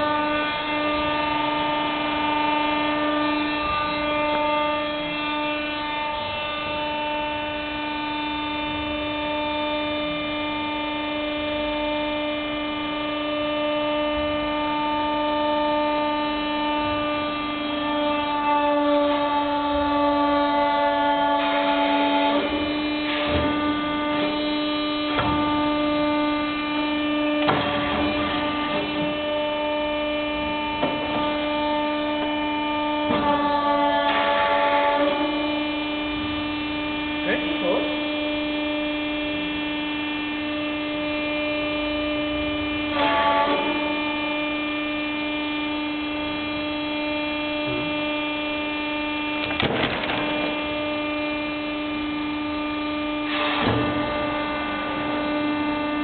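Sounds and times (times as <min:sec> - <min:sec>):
hydraulic power unit humming: 0:00.0 - 0:56.0.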